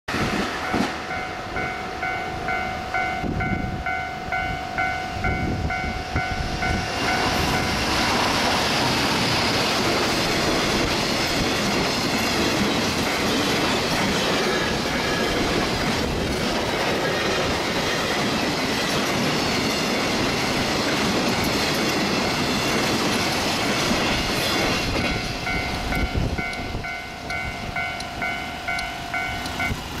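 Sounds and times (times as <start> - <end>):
freight train wheels clattering: 0.1 - 4.2, 4.9 - 30.0
commuter train rumbling: 0.1 - 30.0
level crossing alarm clanging: 24.6 - 29.9.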